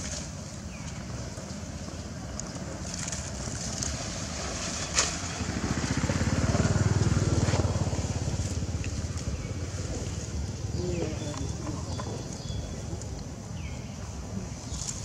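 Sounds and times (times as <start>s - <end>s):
small engine passing: 0.1s - 13.7s.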